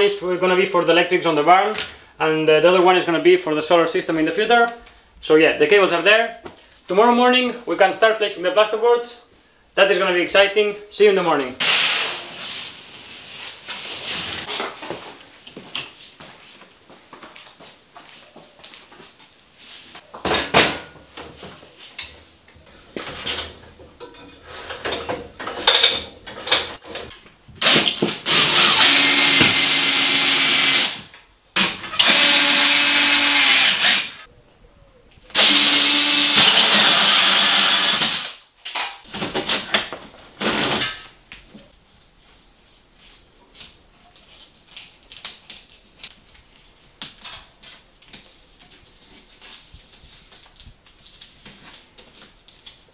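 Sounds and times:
electric power drill running: 27.6 - 31.1, 32.0 - 34.2, 35.4 - 38.4.

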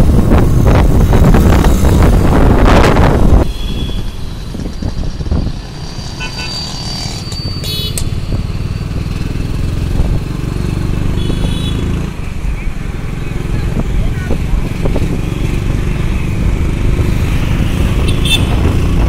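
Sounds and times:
wind buffeting microphone: 0.0 - 5.9, 13.4 - 19.0
road noise: 0.0 - 19.0.

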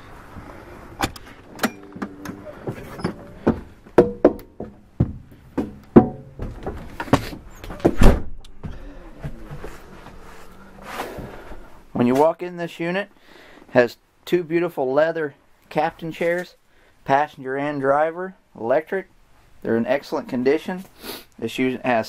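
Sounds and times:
footsteps climbing steps: 0.2 - 11.7
door unlatching and opening: 1.0 - 4.2, 6.1 - 10.2.

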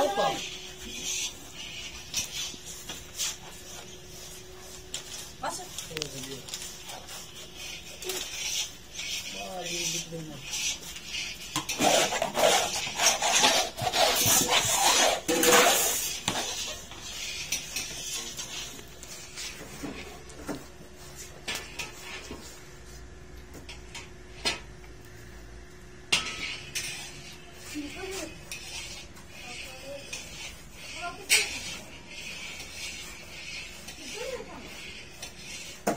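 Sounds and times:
plate scraping steel pan: 6.7 - 20.1, 26.1 - 35.9.

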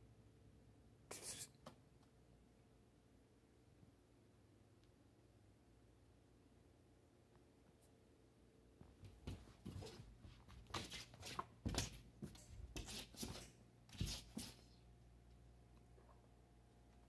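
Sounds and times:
cat paws scuffing on carpet: 8.8 - 14.7.

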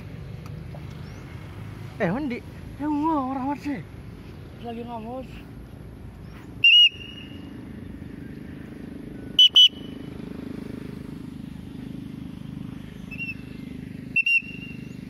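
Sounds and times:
shrill whistles: 6.6 - 7.5, 9.4 - 10.0, 13.1 - 13.5, 14.1 - 15.0.

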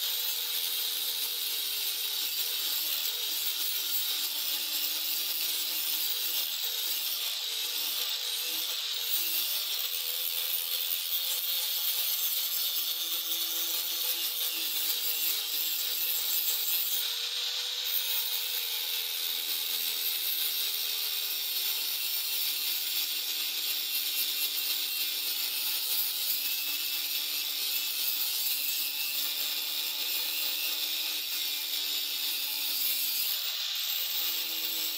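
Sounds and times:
grinding disc hissing on steel: 32.7 - 34.9.

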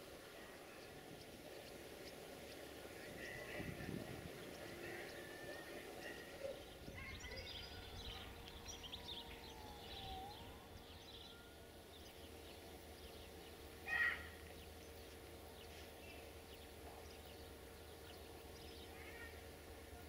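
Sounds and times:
birds chirping: 0.0 - 20.0
faint steady hum: 0.0 - 20.0.

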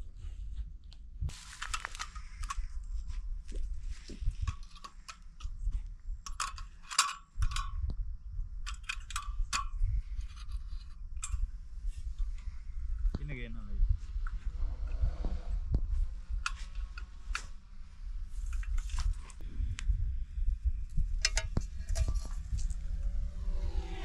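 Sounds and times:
objects being handled: 1.3 - 7.7
steady low rumble: 7.4 - 24.0.

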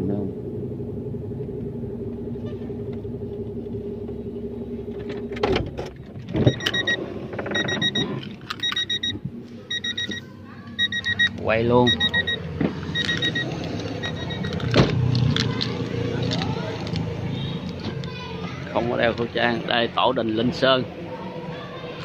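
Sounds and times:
vehicle engine running: 0.0 - 22.0
electronic beeper pips: 7.6 - 14.6.

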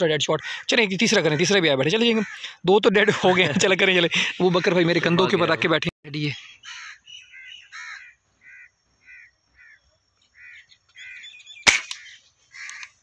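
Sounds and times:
crow cawing: 0.4 - 2.6, 6.5 - 11.4, 12.0 - 13.0
air rifle shot: 11.6 - 12.1.

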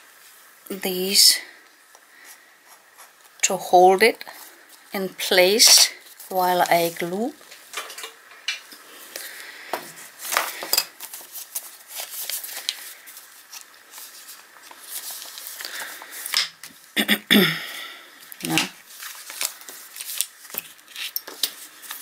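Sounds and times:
paper and card rustling: 4.3 - 8.0, 9.0 - 16.9, 18.4 - 22.0.

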